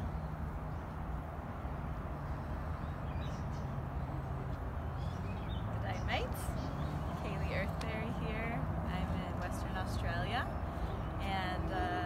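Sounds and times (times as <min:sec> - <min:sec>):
low outdoor rumble: 0:04.2 - 0:12.0.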